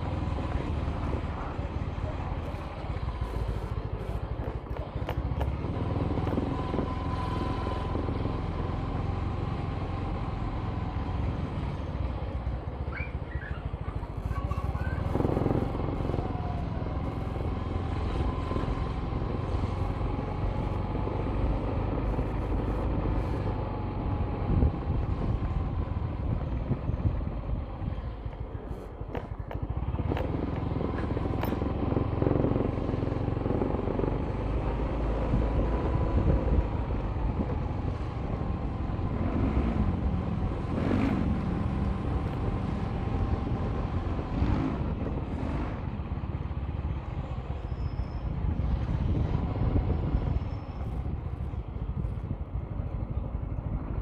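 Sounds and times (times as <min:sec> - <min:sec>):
road rumble: 0:00.0 - 0:54.0
vehicle engine hum: 0:00.0 - 0:54.0
wind noise: 0:18.2 - 0:54.0.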